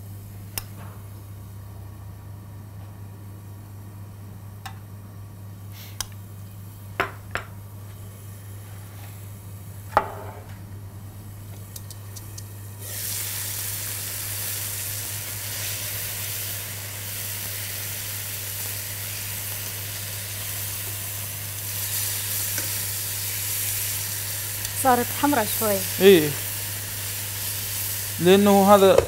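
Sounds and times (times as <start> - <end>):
chicken sizzling in a pan: 11.7 - 29.0.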